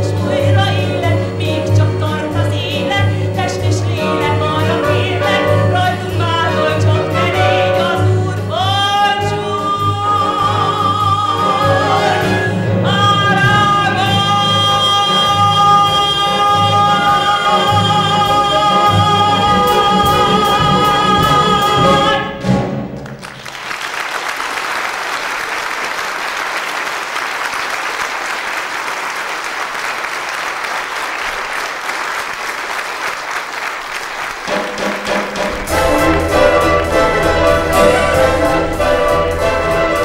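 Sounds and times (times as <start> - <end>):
woman singing: 0.0 - 22.4
orchestra brass: 0.0 - 23.6, 33.6 - 40.0
theatre orchestra playing: 0.0 - 40.0
audience applauding: 22.9 - 40.0.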